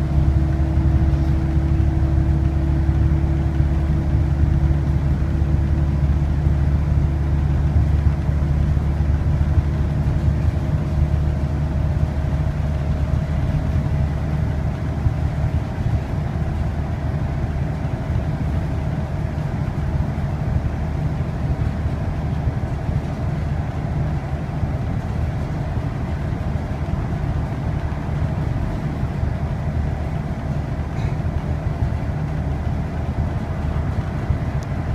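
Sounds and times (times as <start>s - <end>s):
bus diesel engine droning: 0.0s - 34.9s
tyre and road noise: 20.7s - 34.9s.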